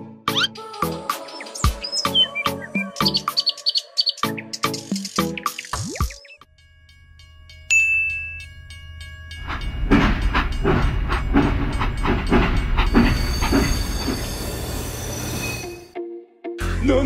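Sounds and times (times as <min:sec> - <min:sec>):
rhythmic chugging: 0:04.2 - 0:15.8.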